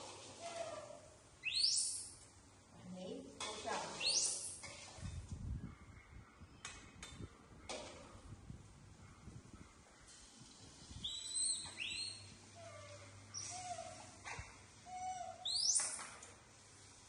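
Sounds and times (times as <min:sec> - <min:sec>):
monkeys squeaking calls: 0:00.6 - 0:02.1.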